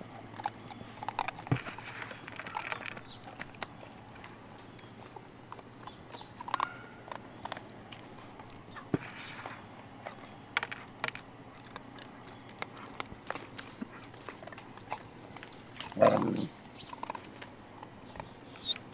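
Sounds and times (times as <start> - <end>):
crickets chirring: 0.0 - 18.9
puppy crying: 16.0 - 16.6.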